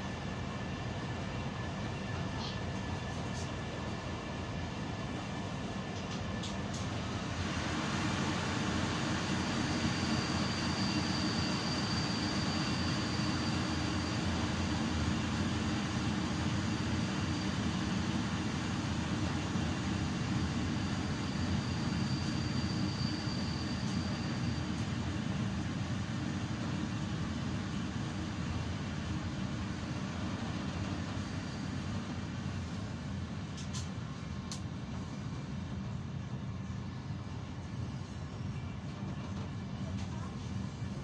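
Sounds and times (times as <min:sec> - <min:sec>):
train wheels rumbling on rails: 0:00.0 - 0:36.4
faint high whine: 0:08.0 - 0:25.0.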